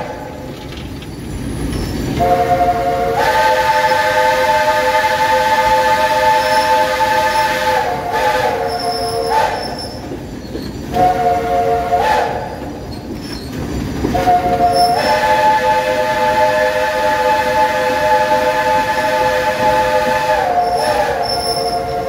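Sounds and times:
steam locomotive whistle: 0:00.0 - 0:00.4, 0:02.2 - 0:10.2, 0:10.9 - 0:12.8, 0:14.1 - 0:22.0
train running rumble: 0:00.0 - 0:22.0.

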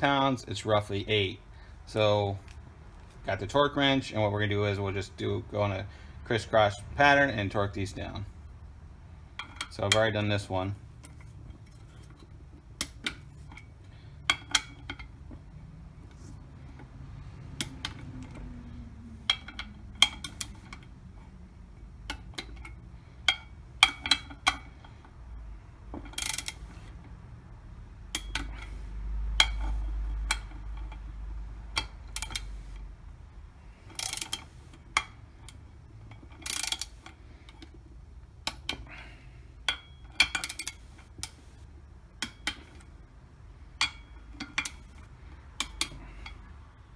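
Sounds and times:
torque wrench clicking: 0:26.0 - 0:26.6, 0:31.7 - 0:32.6, 0:33.9 - 0:37.7.

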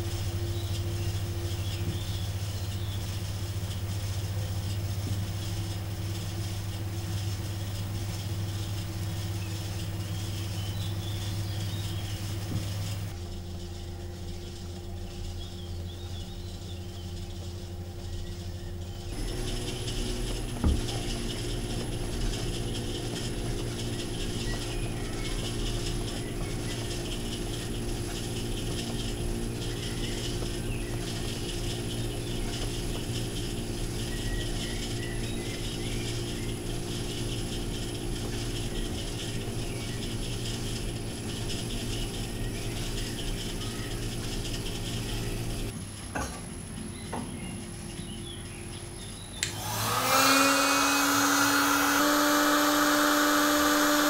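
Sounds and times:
potter's wheel motor hum: 0:00.0 - 0:54.0
wheel mechanical rattle: 0:00.0 - 0:54.0.

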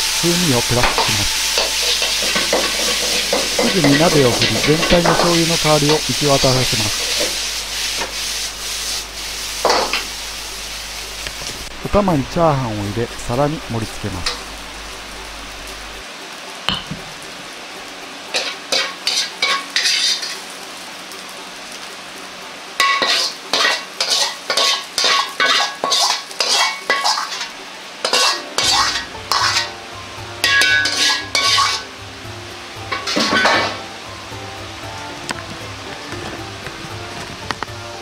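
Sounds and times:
low sizzling hiss: 0:00.0 - 0:38.0
metal ladle scraping in wok: 0:01.0 - 0:10.1, 0:18.3 - 0:20.4, 0:22.8 - 0:29.7, 0:30.4 - 0:31.9.

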